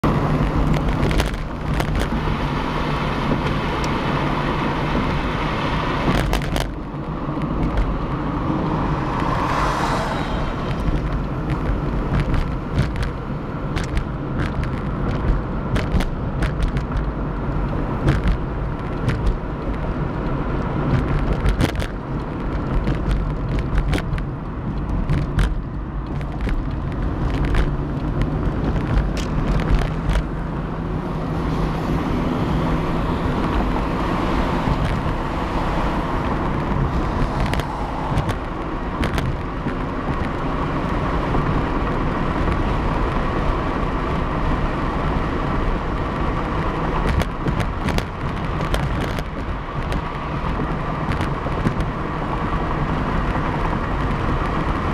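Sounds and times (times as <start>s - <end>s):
car tyre and engine hum: 0.0s - 54.9s
whooshing swell: 8.5s - 10.8s.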